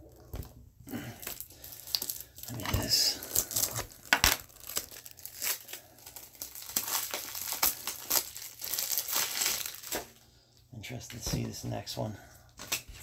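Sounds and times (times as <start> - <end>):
plastic wrapping crinkling and tearing: 0.9 - 10.2.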